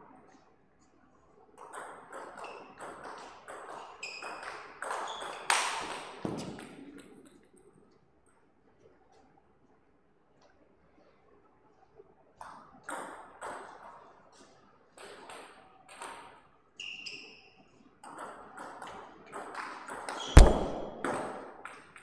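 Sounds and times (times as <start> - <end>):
brief squeak: 16.8 - 17.6
heavy thump: 20.4 - 21.2.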